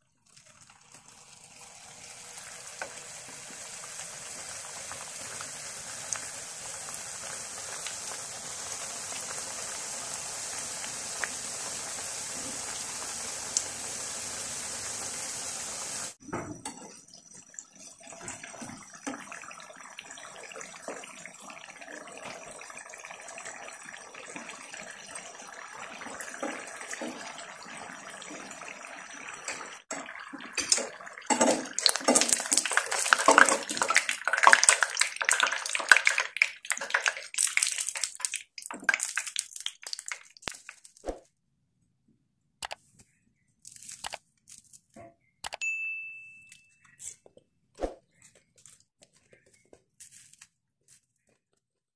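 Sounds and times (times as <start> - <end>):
food deep-frying in hot oil: 0.0 - 41.0.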